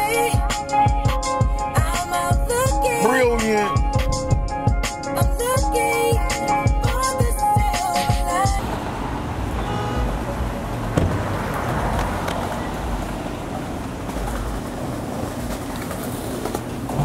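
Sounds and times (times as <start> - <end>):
hip-hop music: 0.0 - 8.6
traffic rumble: 8.3 - 17.0.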